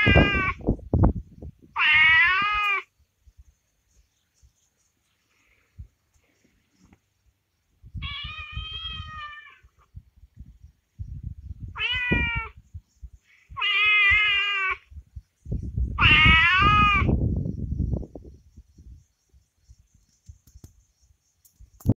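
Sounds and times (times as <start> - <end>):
predator call distress cries: 0.0 - 0.6, 1.7 - 2.9, 8.0 - 9.7, 11.7 - 12.6, 13.4 - 14.9, 16.0 - 17.2
wind or handling rumble: 0.0 - 2.7, 5.4 - 21.9.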